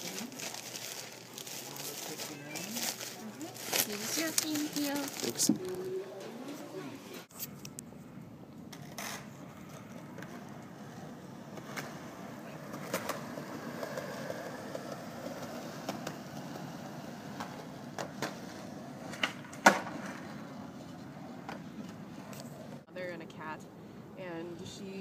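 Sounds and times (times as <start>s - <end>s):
skateboard wheels rolling on concrete: 8.5s - 22.9s
skateboard clacks: 11.5s - 20.5s.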